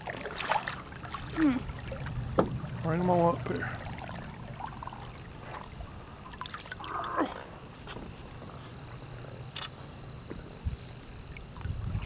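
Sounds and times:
water splashing and trickling: 0:00.0 - 0:07.4, 0:11.3 - 0:12.0
steady low hum: 0:00.0 - 0:12.0.

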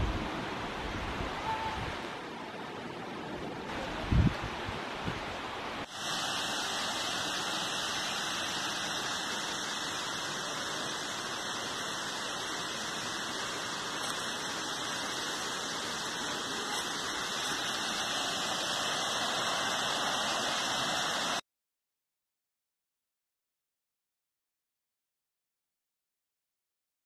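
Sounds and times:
waterfall rushing: 0:00.0 - 0:21.4.

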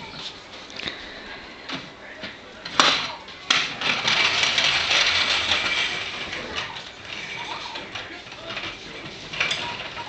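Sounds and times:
puppy claws scrabbling on tile: 0:02.7 - 0:10.0.

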